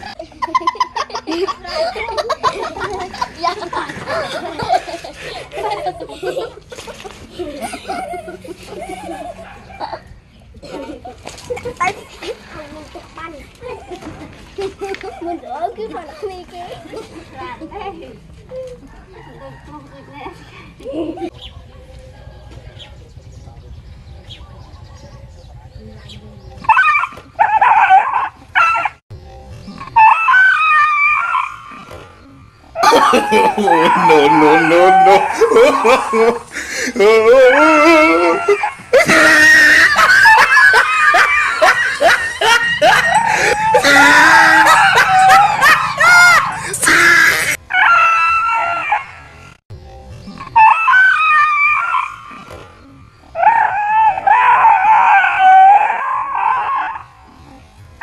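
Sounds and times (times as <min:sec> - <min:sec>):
dog yelping and howling: 0:26.7 - 0:29.0, 0:30.0 - 0:31.9, 0:32.8 - 0:36.4, 0:37.2 - 0:49.3, 0:50.6 - 0:52.5, 0:53.4 - 0:57.2.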